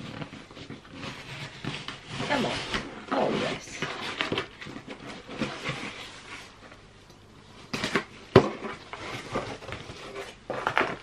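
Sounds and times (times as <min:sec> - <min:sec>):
cardboard flaps rustling and scraping: 0:00.0 - 0:06.8, 0:07.7 - 0:11.0.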